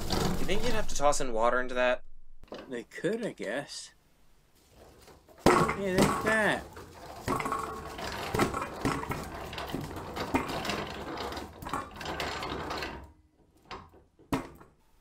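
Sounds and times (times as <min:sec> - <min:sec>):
potatoes rattling in metal drum: 0:00.0 - 0:01.0, 0:04.8 - 0:13.1.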